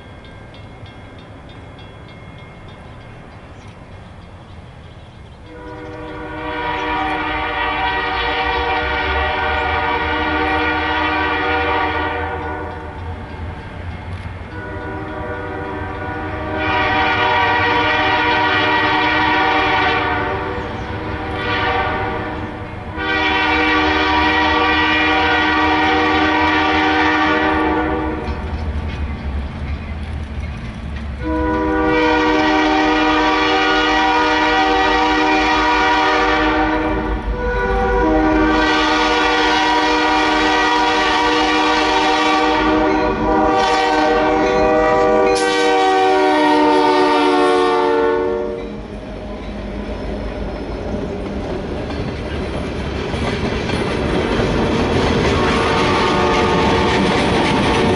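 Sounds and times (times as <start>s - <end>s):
locomotive air horn blasts: 5.5s - 12.9s, 14.5s - 28.4s, 31.2s - 48.8s, 55.4s - 57.0s.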